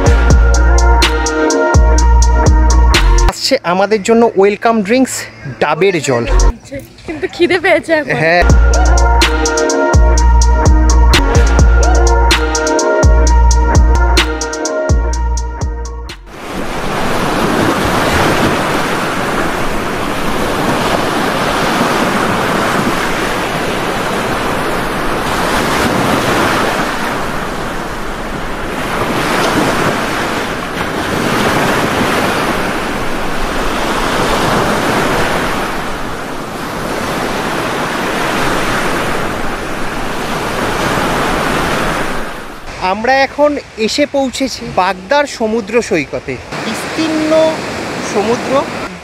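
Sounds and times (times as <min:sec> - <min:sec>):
wind on microphone: 0:16.3 - 0:42.5
surf breaking on beach: 0:16.3 - 0:49.0.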